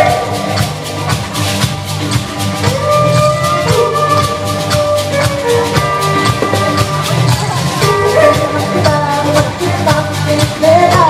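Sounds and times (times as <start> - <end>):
steady drum beat: 0.0 - 11.0
gliding melody notes: 2.7 - 9.6.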